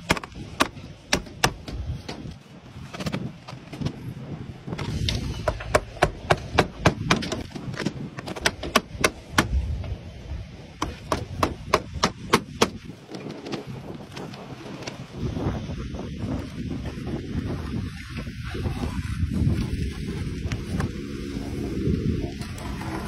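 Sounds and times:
hammer driving nails into slates: 5.4s - 9.6s.

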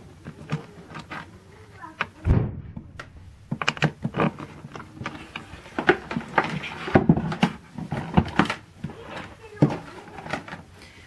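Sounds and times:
heavy thump: 2.2s - 3.6s.

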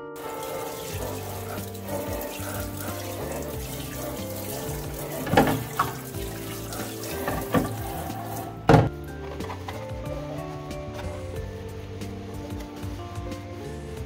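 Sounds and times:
faucet water spraying into sink: 0.2s - 8.8s.

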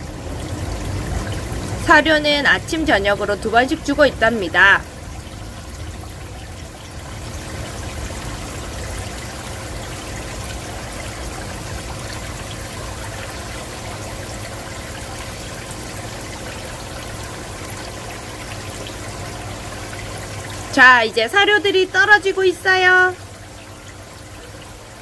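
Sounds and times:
water trickling in an aquarium: 0.0s - 25.0s.

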